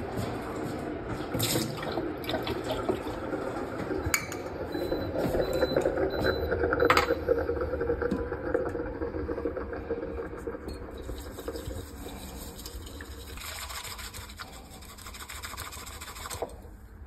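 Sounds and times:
water pouring into steel sink: 0:10.8 - 0:16.4.

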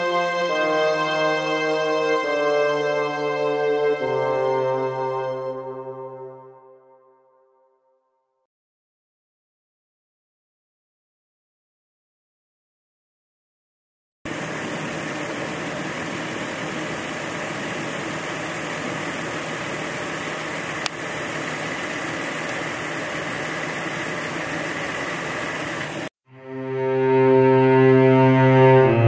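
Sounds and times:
engine idling: 0:14.3 - 0:26.1.

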